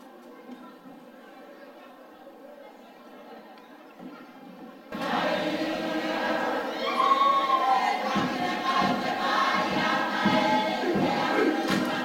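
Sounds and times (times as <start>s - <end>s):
choir singing: 4.9s - 12.0s.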